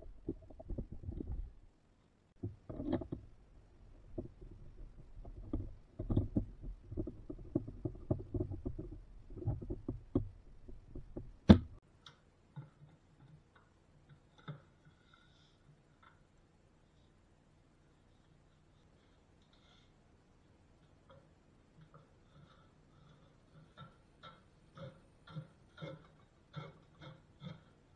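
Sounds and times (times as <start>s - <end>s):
metal plane knocking and clattering: 21.1s - 27.9s.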